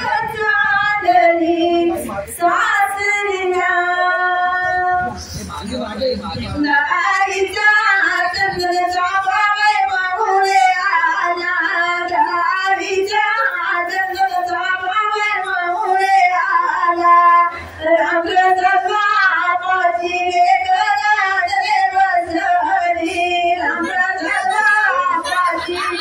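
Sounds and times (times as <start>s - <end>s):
woman singing: 0.0s - 5.2s, 6.6s - 26.0s.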